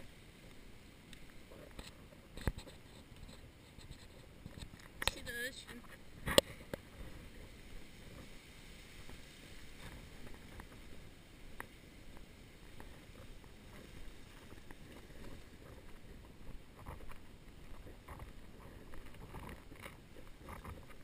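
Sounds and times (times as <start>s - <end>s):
wind rustle on microphone: 0.0s - 21.0s
faint ticks: 0.4s - 7.0s, 9.8s - 21.0s
footsteps in soft sand: 6.0s - 21.0s.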